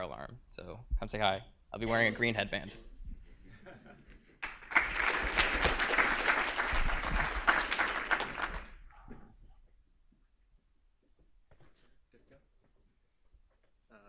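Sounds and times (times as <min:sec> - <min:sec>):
audience applauding: 0:04.4 - 0:08.8.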